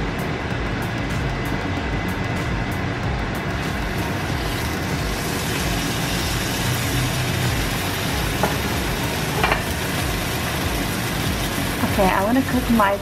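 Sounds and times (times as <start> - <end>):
meat sizzling in a frying pan: 3.8 - 13.0.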